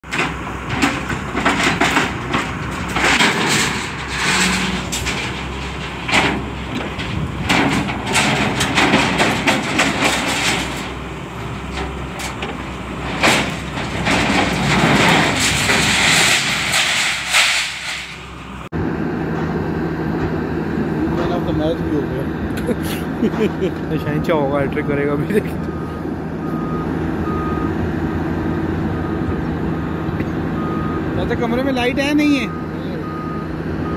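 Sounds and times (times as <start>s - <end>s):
steel bars clanking and rattling: 0.0s - 18.4s
excavator diesel engine running: 0.0s - 33.9s.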